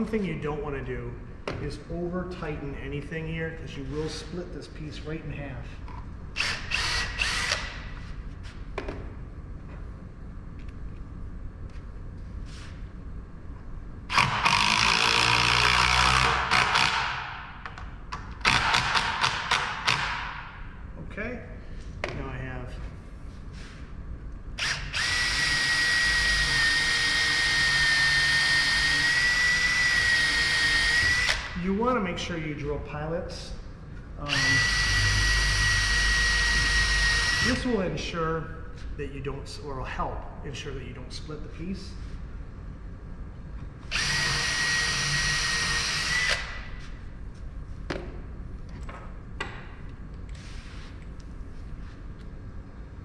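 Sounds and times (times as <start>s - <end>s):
cordless drill whining: 24.6s - 31.4s, 43.9s - 46.5s.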